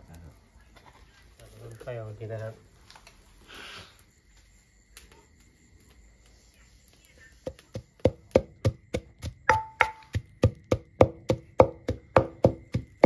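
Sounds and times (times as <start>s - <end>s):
wooden pestle pounding in mortar: 7.5s - 13.0s.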